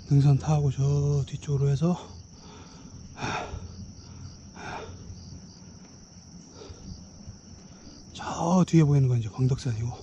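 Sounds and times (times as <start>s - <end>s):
faint pulsing chirp: 0.0s - 10.0s
insects trilling: 0.0s - 10.0s
soft noisy puffs: 2.0s - 8.3s.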